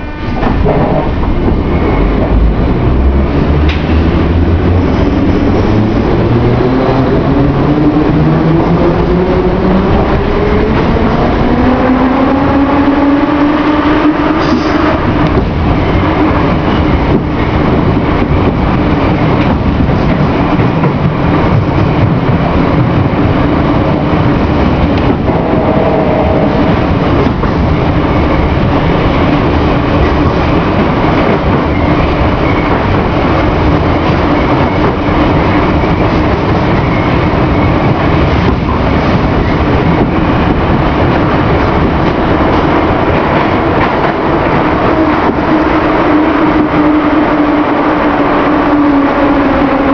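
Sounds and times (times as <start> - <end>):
metro train wheels running: 0.0 - 49.9.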